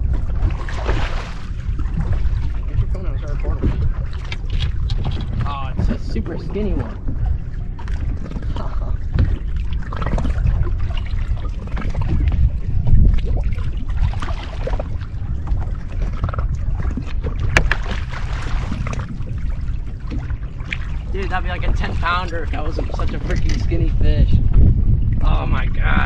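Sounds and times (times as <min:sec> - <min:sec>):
water slapping boat hull: 0:00.0 - 0:26.0
wind buffeting microphone: 0:00.0 - 0:26.0
fish thrashing and splashing: 0:00.2 - 0:02.7, 0:03.6 - 0:21.1.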